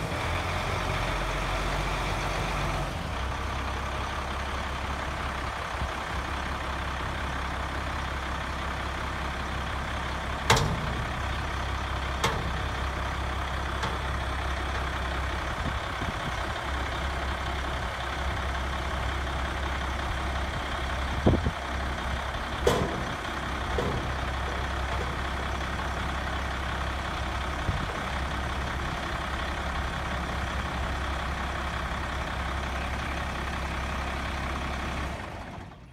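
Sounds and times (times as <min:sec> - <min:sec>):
diesel engine idling: 0:00.0 - 0:35.9
sharp metal clunks: 0:10.5 - 0:11.4, 0:12.2 - 0:12.8, 0:22.6 - 0:26.3.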